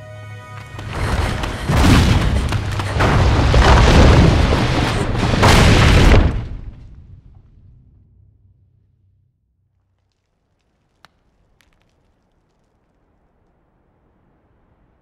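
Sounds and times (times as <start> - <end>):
rock falling with rumbling booms: 0.8 - 8.2.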